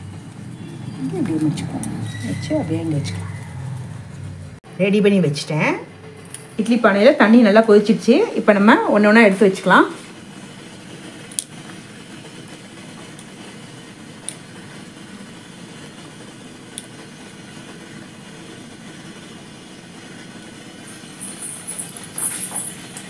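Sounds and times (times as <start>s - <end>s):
water boiling in steel pot: 6.6s - 23.0s
rustling and clinking: 20.8s - 23.0s.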